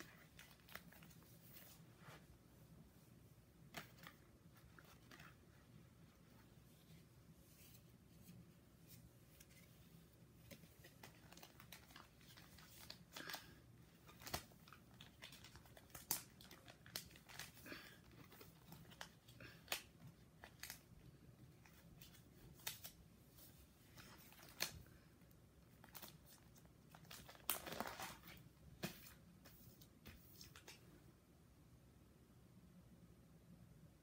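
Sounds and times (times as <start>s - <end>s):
plastic pages crinkling and clicking: 0.0s - 1.8s, 3.7s - 5.7s, 10.4s - 23.0s, 23.9s - 25.0s, 25.7s - 29.2s.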